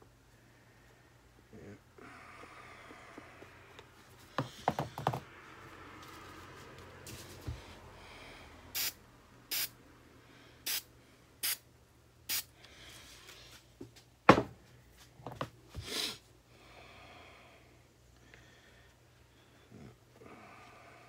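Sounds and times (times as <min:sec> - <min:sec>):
aerosol can spraying: 0:08.8 - 0:09.7, 0:10.7 - 0:11.6, 0:12.3 - 0:12.5.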